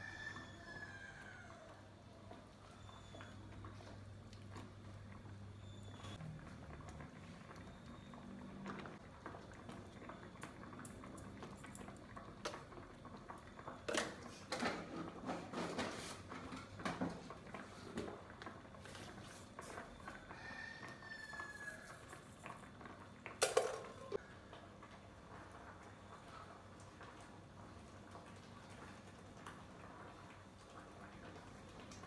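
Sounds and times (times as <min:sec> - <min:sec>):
sauce simmering in a wok: 0:00.0 - 0:23.4, 0:24.0 - 0:32.0.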